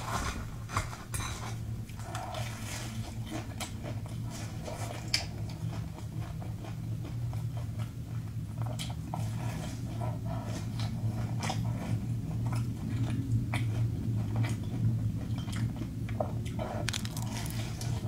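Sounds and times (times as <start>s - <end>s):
steady low hum: 0.0s - 18.0s
bite into crisp crust: 16.6s - 18.0s
chopsticks tapping fried food: 16.9s - 17.8s.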